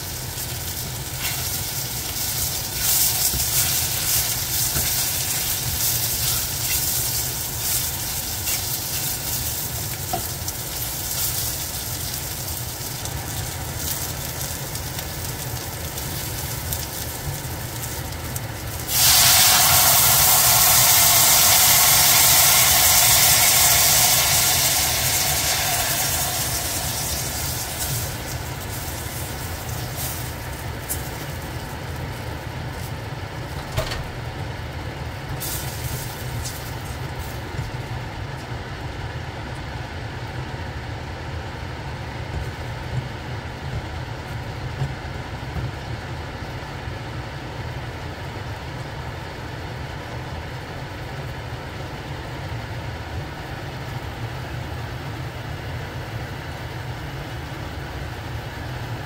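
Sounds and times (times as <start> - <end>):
sauce bubbling in a saucepan: 0.0 - 33.4
gas stove rumble: 0.0 - 59.0.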